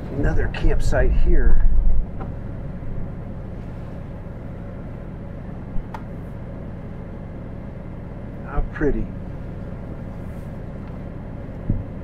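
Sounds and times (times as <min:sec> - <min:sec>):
vehicle rumbling on dirt road: 0:00.0 - 0:06.3.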